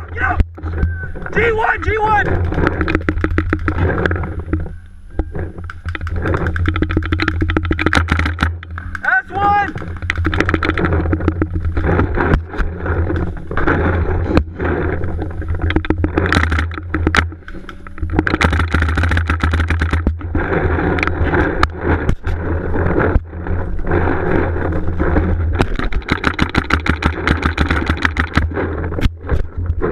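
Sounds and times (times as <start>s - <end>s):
steady low rumble: 0.0s - 29.9s
paintball markers firing: 5.7s - 9.1s, 18.3s - 20.1s, 25.7s - 28.5s
paintballs smacking inflatable bunker: 5.7s - 9.1s, 16.2s - 17.3s, 18.2s - 20.3s, 25.6s - 29.9s.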